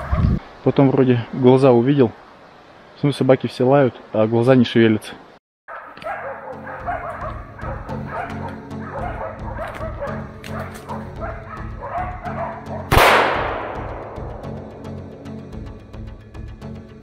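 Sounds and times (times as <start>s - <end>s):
dogs barking: 5.7s - 12.9s
music with low beat: 6.8s - 17.0s
rifle shot: 12.9s - 14.4s.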